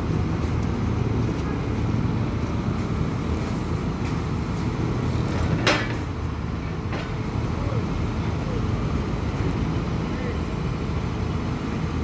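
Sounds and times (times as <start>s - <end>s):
excavator diesel engines rumbling: 0.0s - 12.0s.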